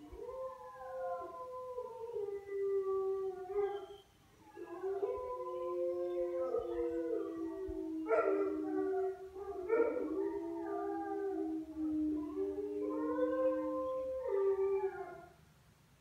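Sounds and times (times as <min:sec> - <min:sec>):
dogs howling in chorus: 0:00.0 - 0:15.3.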